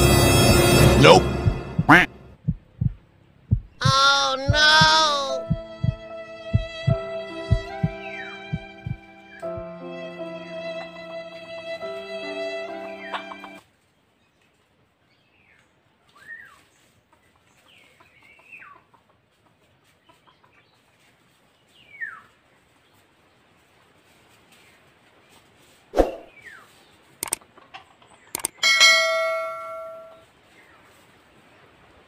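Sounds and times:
junglefowl clucking: 0:13.0 - 0:13.6
clicks: 0:28.4 - 0:28.6
ringing chime: 0:28.6 - 0:30.2.

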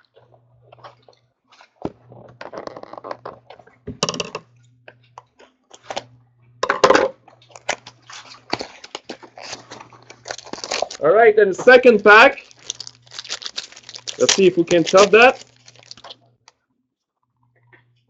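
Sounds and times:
cards rustling and flicking: 0:07.6 - 0:11.0, 0:12.4 - 0:16.2.

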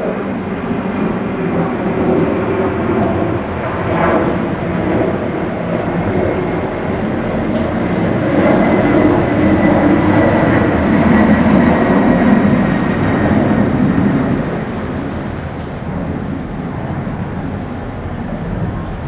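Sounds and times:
jet engines at takeoff: 0:00.0 - 0:19.0.

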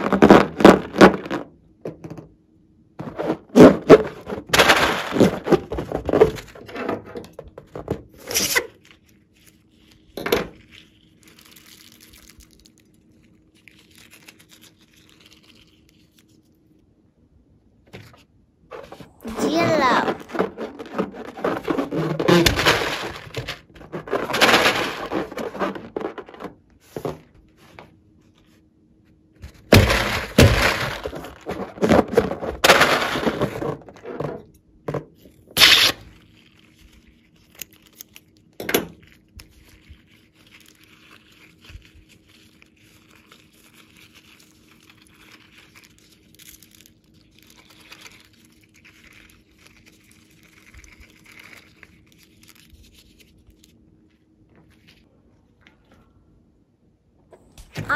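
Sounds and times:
crinkling and rubbing: 0:00.0 - 0:01.6, 0:03.0 - 0:16.8, 0:17.9 - 0:28.7, 0:29.4 - 0:56.0
rubber balloon squeaking: 0:18.7 - 0:24.4.

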